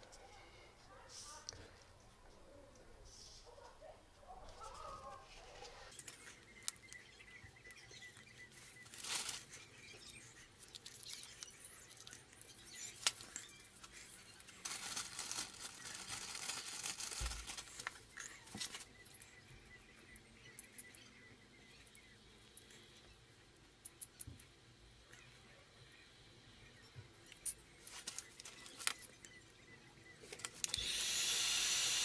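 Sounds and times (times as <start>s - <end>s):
pliers and wire clicking: 30.3s - 31.1s.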